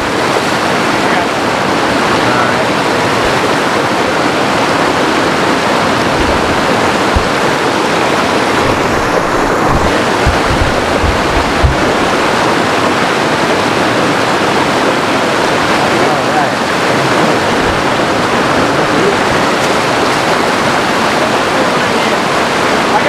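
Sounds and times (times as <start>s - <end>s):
stream rushing over rocks: 0.0s - 23.0s
low thumps: 5.1s - 12.9s.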